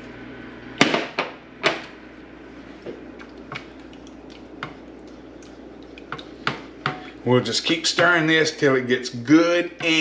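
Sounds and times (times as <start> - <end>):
soft wet stirring of sauce: 2.4 - 8.6.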